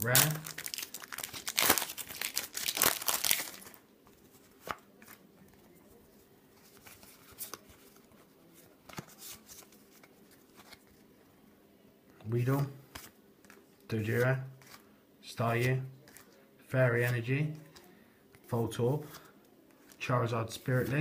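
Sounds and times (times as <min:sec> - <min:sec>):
foil wrapper crinkling: 0:00.0 - 0:03.8.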